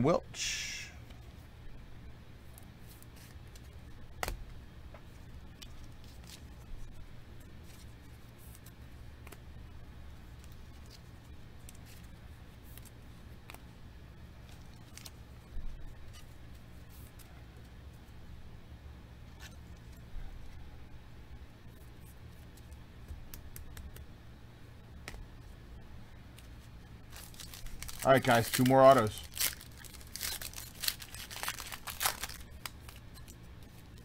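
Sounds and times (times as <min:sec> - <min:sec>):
low steady hum: 0:00.0 - 0:34.0
cards and plastic sleeves rustling: 0:02.4 - 0:04.4, 0:05.0 - 0:09.5, 0:10.1 - 0:13.7, 0:14.4 - 0:17.7, 0:26.3 - 0:34.0.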